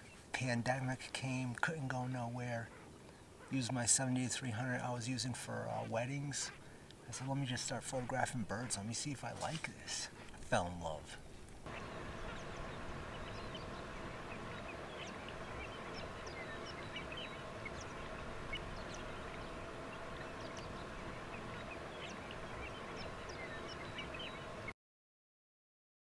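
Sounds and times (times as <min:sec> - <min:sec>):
flock of waterfowl calling: 0:02.4 - 0:10.0, 0:11.7 - 0:24.7.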